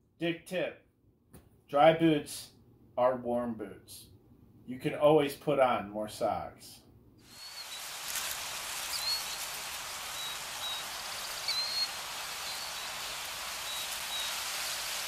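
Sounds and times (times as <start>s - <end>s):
steady hissing ambience: 1.7s - 15.0s
high bird-like chirps: 7.3s - 15.0s.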